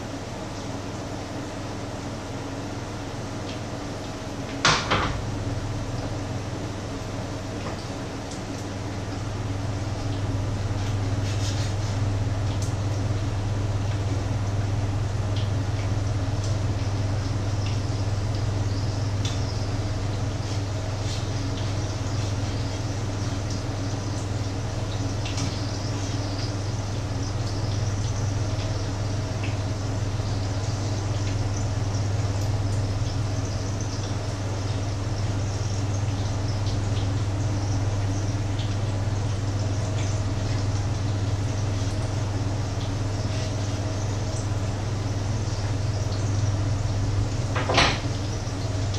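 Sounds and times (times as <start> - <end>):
steady low hum: 0.0 - 48.9
patties sizzling in oil: 7.0 - 48.9.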